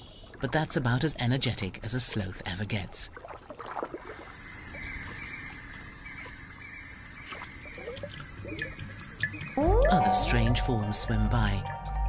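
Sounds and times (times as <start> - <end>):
water sloshing and trickling: 0.0 - 11.1
high-pitched tone: 9.6 - 12.0.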